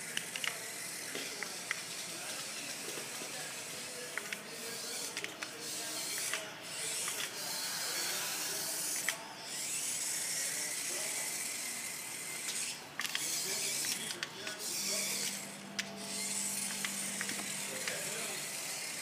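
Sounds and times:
mechanical toy whirring: 0:00.0 - 0:19.0
toy clicks: 0:12.4 - 0:18.9.

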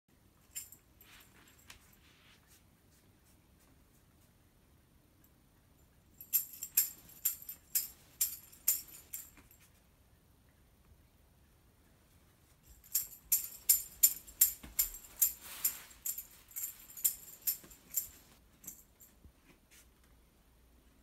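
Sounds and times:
tambourine jingling: 0:06.2 - 0:09.5, 0:12.6 - 0:19.1.

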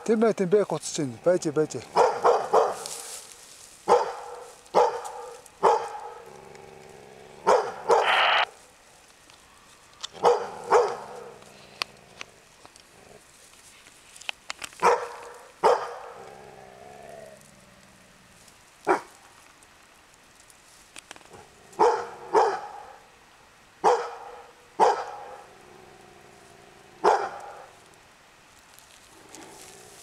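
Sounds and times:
dog barking: 0:01.9 - 0:03.1, 0:03.9 - 0:06.2, 0:07.4 - 0:08.2, 0:10.2 - 0:11.4, 0:14.8 - 0:16.2, 0:18.9 - 0:19.1, 0:21.8 - 0:23.0, 0:23.8 - 0:25.4, 0:27.0 - 0:27.7.

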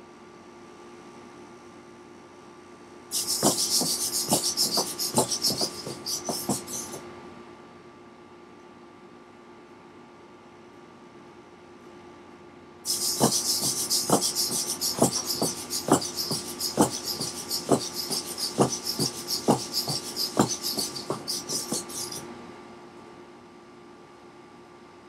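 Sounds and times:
robot servos whirring: 0:03.1 - 0:07.0, 0:12.9 - 0:22.2
feet tapping on wooden floor: 0:03.2 - 0:07.0, 0:12.9 - 0:22.2.

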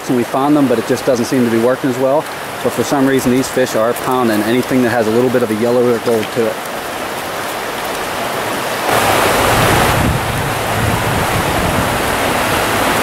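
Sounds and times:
stream water rushing: 0:00.0 - 0:13.0
wind gusting on microphone: 0:06.9 - 0:13.0.

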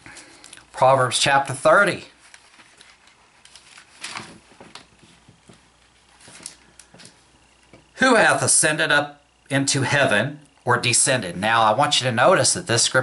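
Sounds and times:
pages turning: 0:02.1 - 0:07.2.

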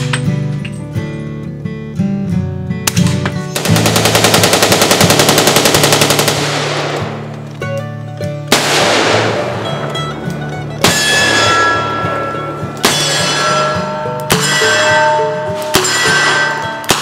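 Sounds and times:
guitar music: 0:00.0 - 0:17.0
rapid rifle shots: 0:02.9 - 0:07.3, 0:08.5 - 0:09.8.

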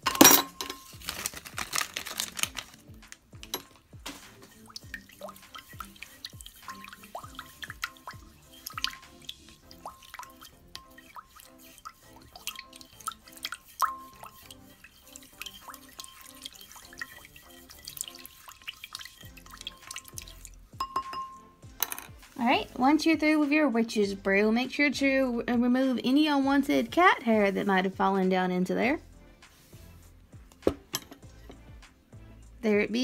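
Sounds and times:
quiet background music: 0:00.0 - 0:33.0
liquid dripping plinks: 0:03.5 - 0:21.6
hand swishing through liquid: 0:04.0 - 0:20.4.

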